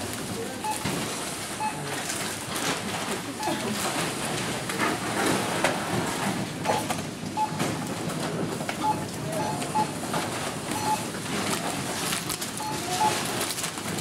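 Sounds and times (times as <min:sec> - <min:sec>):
barcode scanner beeps: 0:00.6 - 0:00.9, 0:01.6 - 0:01.9, 0:03.4 - 0:03.8, 0:06.7 - 0:07.6, 0:08.8 - 0:10.0, 0:10.7 - 0:11.2, 0:12.6 - 0:13.3.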